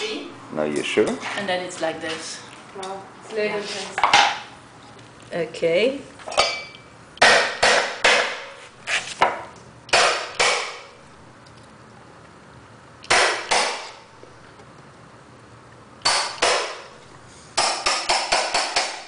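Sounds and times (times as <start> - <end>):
hammer knocking on chisel: 17.6 - 19.0.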